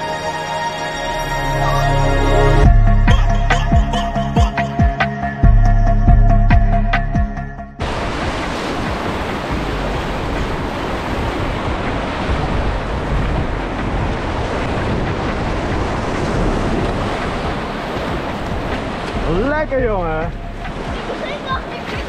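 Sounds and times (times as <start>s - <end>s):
whitewater rapids rushing: 7.8s - 22.0s
wind buffeting microphone: 7.8s - 22.0s.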